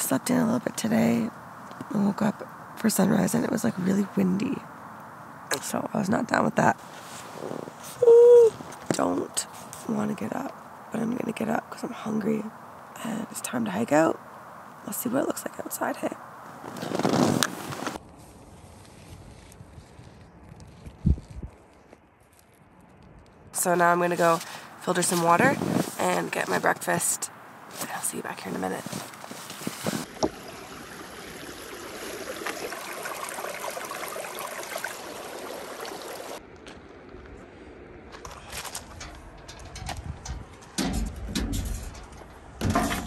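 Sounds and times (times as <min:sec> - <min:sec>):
tent fabric rustling: 0:06.8 - 0:08.9, 0:16.6 - 0:22.6, 0:24.1 - 0:26.6, 0:27.7 - 0:30.1
creek babbling over stones: 0:30.0 - 0:36.4
faint low rumble: 0:36.4 - 0:43.0.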